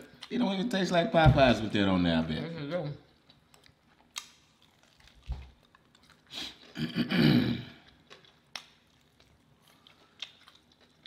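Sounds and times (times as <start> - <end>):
person chewing food: 3.1 - 11.0.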